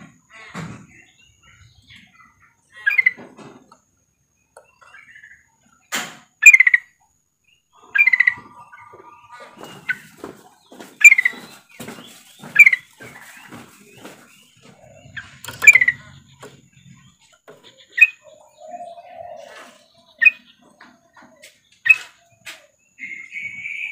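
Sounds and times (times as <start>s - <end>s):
soft bird chatter: 0.0s - 23.9s
bird chirping loudly: 0.3s - 3.2s, 6.4s - 6.9s, 7.7s - 20.7s, 23.0s - 23.9s.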